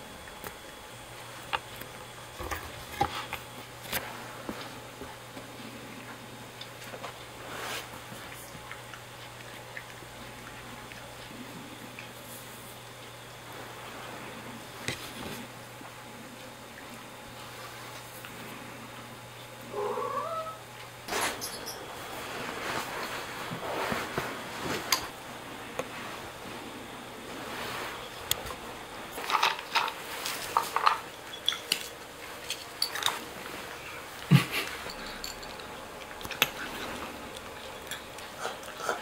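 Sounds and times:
cat meowing: 0:19.7 - 0:20.6.

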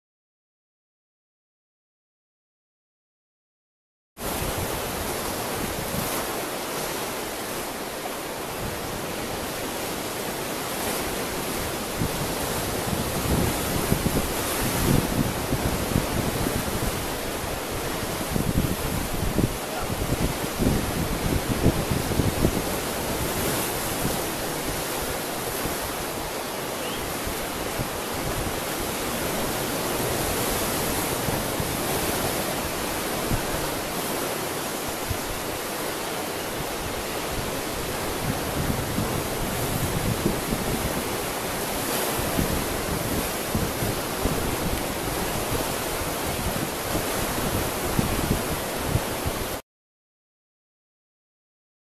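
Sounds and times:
sea surf: 0:04.2 - 0:49.6
wind: 0:04.2 - 0:49.6
wind buffeting microphone: 0:11.1 - 0:34.3, 0:36.6 - 0:49.6.

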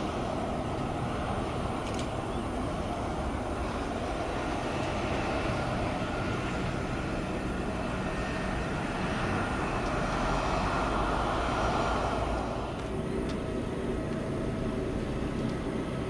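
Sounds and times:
distant jet engines rumbling: 0:00.0 - 0:16.0.

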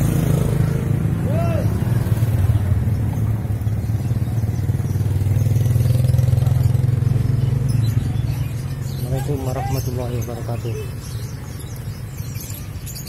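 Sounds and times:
motorcycle engine running: 0:01.8 - 0:09.0.

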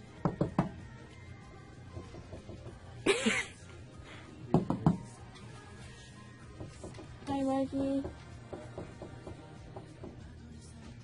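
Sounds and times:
soft knocks on posters: 0:00.2 - 0:00.8, 0:04.5 - 0:05.1, 0:06.6 - 0:10.3
person coughing: 0:03.1 - 0:03.6.

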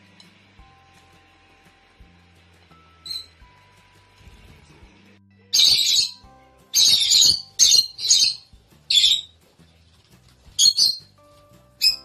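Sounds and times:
faint background music: 0:00.0 - 0:12.0
lovebirds shrieking: 0:05.6 - 0:09.3, 0:10.6 - 0:11.1, 0:11.8 - 0:12.0.

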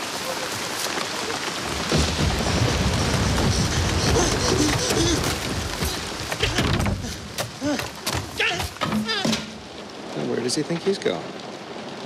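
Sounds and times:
heavy rain pouring: 0:00.0 - 0:12.0
low thunder rumble: 0:01.6 - 0:07.2.

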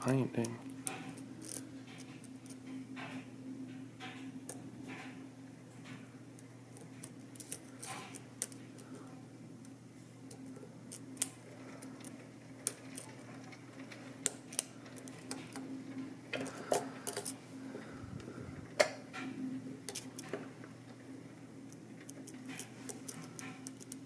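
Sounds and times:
low hum: 0:08.7 - 0:22.1
lock pick clicking and scraping: 0:16.4 - 0:17.4, 0:22.0 - 0:24.0.

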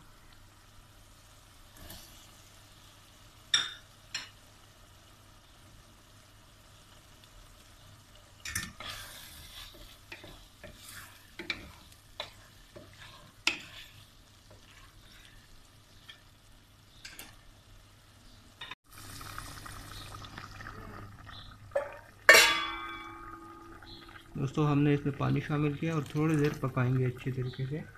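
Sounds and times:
mince sizzling in pot: 0:00.0 - 0:27.9
metal clang: 0:21.8 - 0:23.9.

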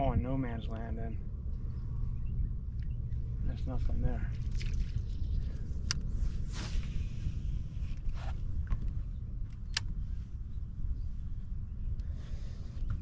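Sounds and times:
wind rumble on microphone: 0:00.0 - 0:13.0
sharp clicks: 0:09.5 - 0:09.9.

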